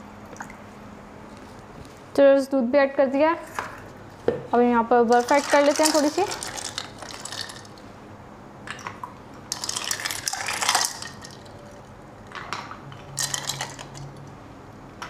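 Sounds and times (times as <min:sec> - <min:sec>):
ice cubes clinking in blender: 0:05.1 - 0:07.8, 0:09.5 - 0:11.6, 0:13.1 - 0:14.1.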